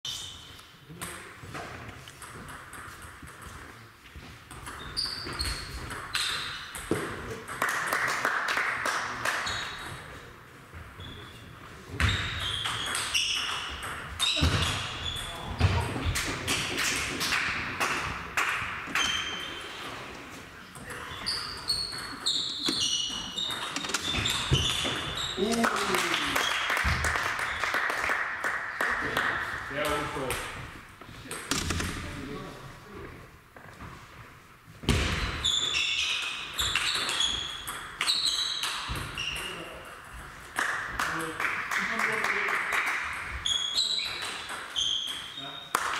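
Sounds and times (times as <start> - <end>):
shoes squeaking on floor: 0.1 - 0.8, 4.2 - 7.0, 9.4 - 15.9, 18.9 - 25.6, 35.1 - 39.8, 43.4 - 45.7
table tennis ball hits: 36.2 - 39.6.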